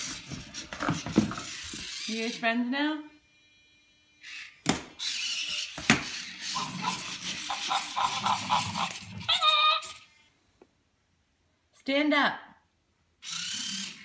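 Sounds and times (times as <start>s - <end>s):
robot toy electronic chatter: 6.2s - 10.1s.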